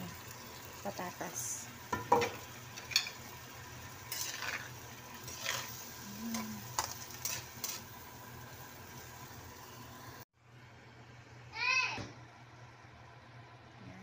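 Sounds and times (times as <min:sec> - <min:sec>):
food sizzling: 0:00.0 - 0:10.3
spatula scraping a wok: 0:04.0 - 0:07.9.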